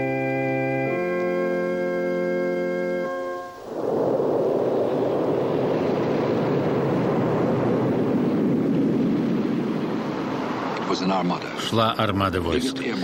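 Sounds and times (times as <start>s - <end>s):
organ chord: 0.0s - 3.6s
rough sea rushing: 3.2s - 13.0s.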